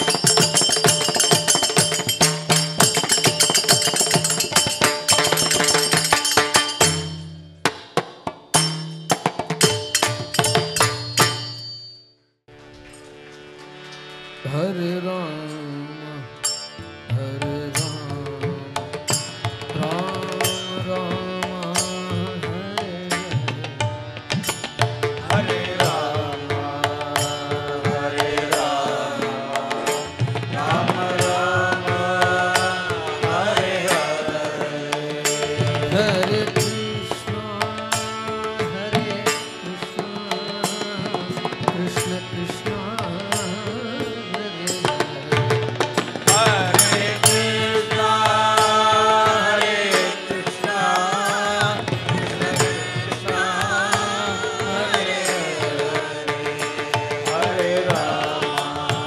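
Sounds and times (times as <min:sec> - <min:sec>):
rhythmic percussion with clicks: 0:00.0 - 0:11.9, 0:16.4 - 0:59.0
devotional singing: 0:25.2 - 0:45.6, 0:46.2 - 0:59.0.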